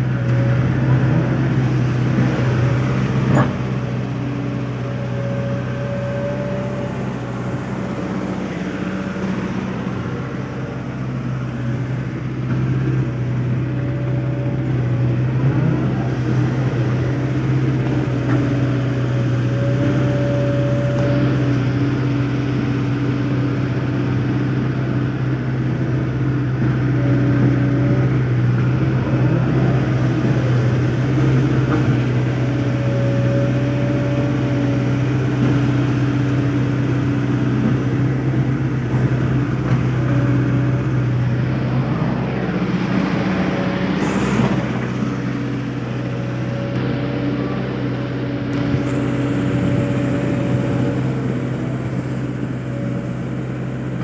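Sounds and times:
diesel excavator engine running: 0:00.0 - 0:54.0
hydraulics whine: 0:00.0 - 0:54.0.

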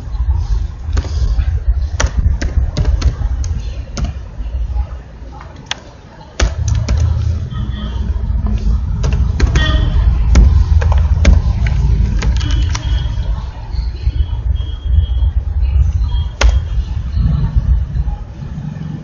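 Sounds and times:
steady low rumble: 0:00.0 - 0:19.0
computer keys typing: 0:12.2 - 0:13.1.

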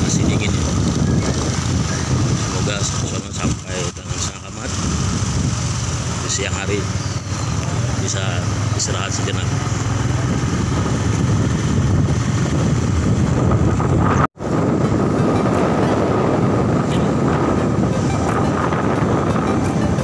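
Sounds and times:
motorcycle engine and road rumble: 0:00.0 - 0:20.0
wind rushing over microphone: 0:00.0 - 0:20.0.

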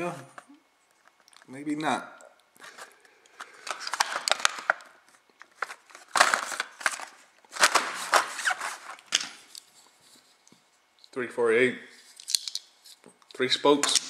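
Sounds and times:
plastic packaging crackling: 0:02.6 - 0:09.6.

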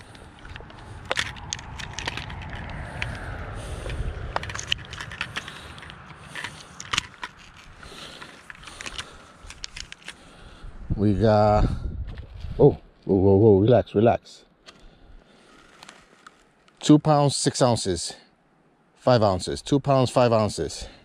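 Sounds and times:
low rumble: 0:00.0 - 0:08.8, 0:10.6 - 0:12.7
handling clicks and scrapes: 0:00.0 - 0:10.4, 0:14.6 - 0:16.8.

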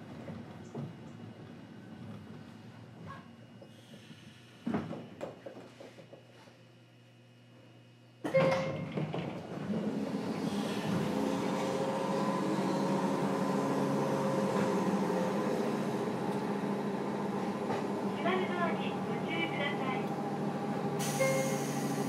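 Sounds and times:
train running noise and hum: 0:08.4 - 0:22.0.

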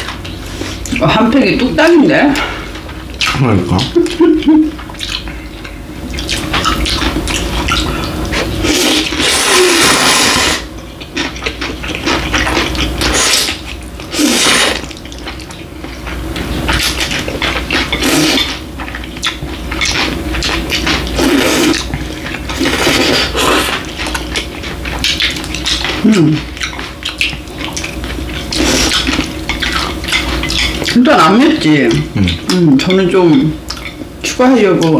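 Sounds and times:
people slurping noodles: 0:06.2 - 0:10.7, 0:12.0 - 0:15.0, 0:16.7 - 0:18.6, 0:19.9 - 0:24.3, 0:25.2 - 0:27.0, 0:28.4 - 0:31.0, 0:32.0 - 0:32.8.

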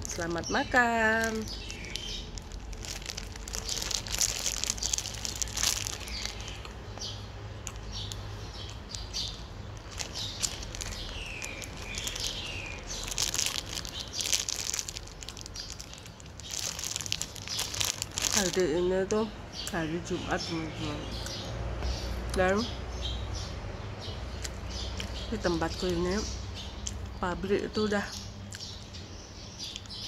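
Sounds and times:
plastic bag crinkling: 0:00.0 - 0:07.0, 0:07.6 - 0:19.2
bird chirps: 0:00.1 - 0:02.4, 0:03.5 - 0:18.7
chewing bread: 0:01.4 - 0:18.6.

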